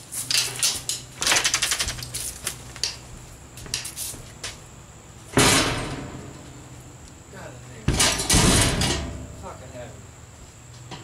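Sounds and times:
loud ringing metal clang: 5.4 - 6.3, 7.9 - 9.4
metal frame rattling and clanking: 7.9 - 9.4.

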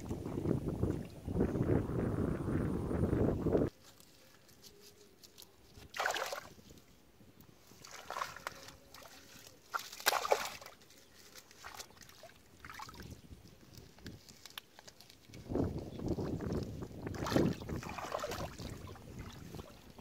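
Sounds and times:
wind on microphone: 0.0 - 3.7, 12.6 - 14.3, 15.3 - 20.0
hands splashing in muddy water: 5.8 - 6.6, 7.8 - 20.0.

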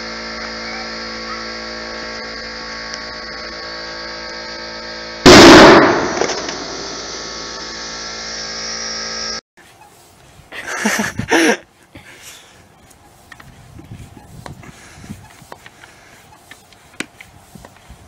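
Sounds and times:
basketball bursting bang: 5.2 - 7.0.

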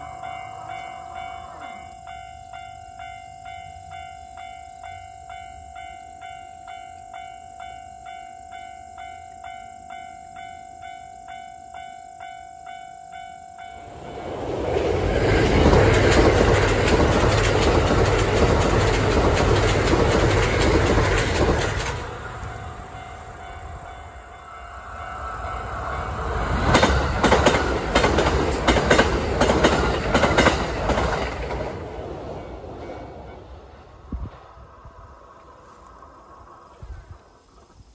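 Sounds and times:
level crossing warning bell: 0.0 - 16.6, 21.2 - 27.6
train passing: 0.0 - 37.9.

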